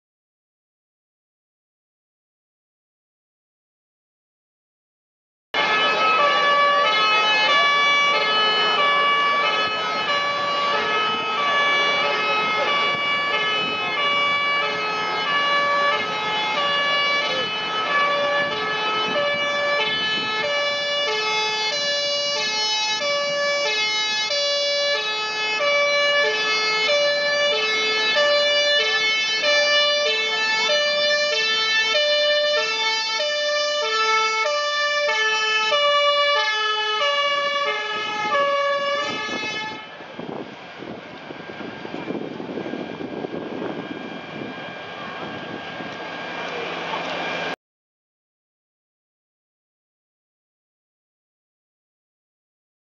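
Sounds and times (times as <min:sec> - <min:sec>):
fire engine two-tone siren: 0:05.6 - 0:47.6.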